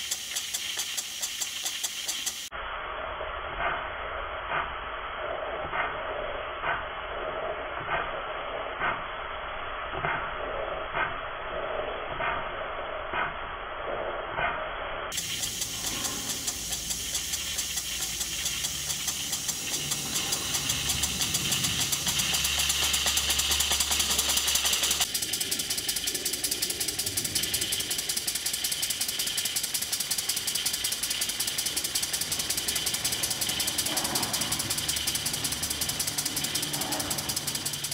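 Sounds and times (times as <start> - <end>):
model steam engine running: 0.0 - 2.5, 15.1 - 37.9.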